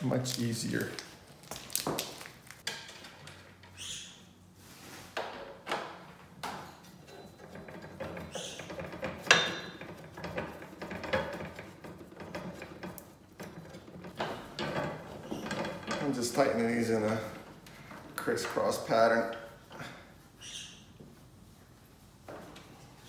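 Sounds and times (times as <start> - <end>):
metal clicks and knocks: 5.3 - 16.7.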